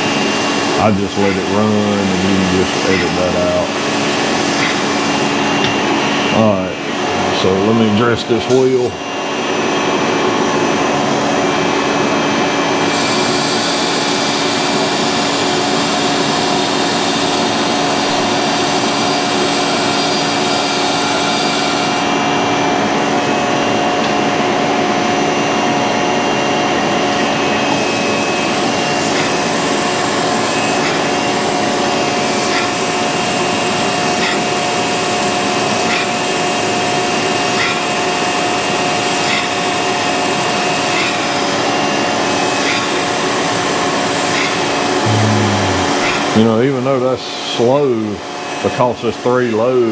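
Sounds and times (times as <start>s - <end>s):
grinding wheel high hiss: 0.0s - 5.4s
grinding machine running: 0.0s - 23.8s, 27.5s - 46.8s.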